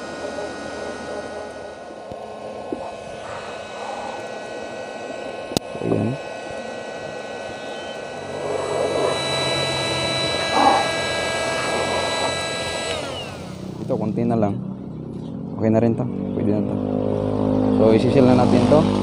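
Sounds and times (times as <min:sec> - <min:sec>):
heat gun blowing air: 0:01.5 - 0:13.8.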